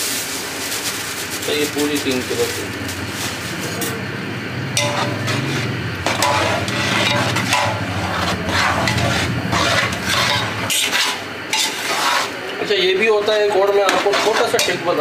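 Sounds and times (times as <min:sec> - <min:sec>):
low steady hum: 0:01.9 - 0:12.6
metal spoon scraping a pot: 0:04.8 - 0:12.5, 0:13.6 - 0:15.0.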